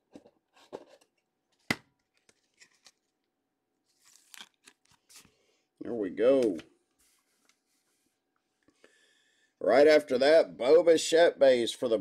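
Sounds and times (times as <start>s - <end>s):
plastic sleeve rustling: 3.8s - 5.4s.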